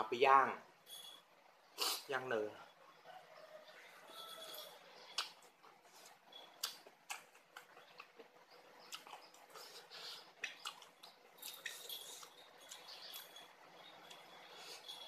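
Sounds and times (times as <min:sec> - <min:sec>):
person chewing with mouth clicks: 0:05.1 - 0:13.1.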